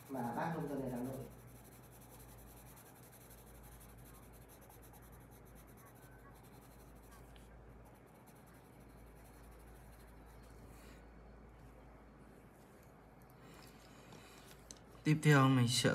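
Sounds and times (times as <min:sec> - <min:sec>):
pencil scratching on paper: 0:00.0 - 0:11.0.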